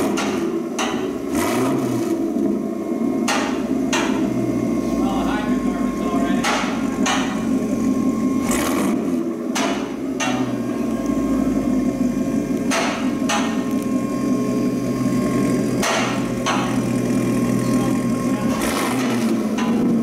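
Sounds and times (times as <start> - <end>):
car engine idling: 0.0 - 20.0
sharp knocks: 0.1 - 1.2, 3.2 - 4.2, 6.4 - 7.5, 9.5 - 10.6, 12.7 - 13.7, 15.8 - 16.8.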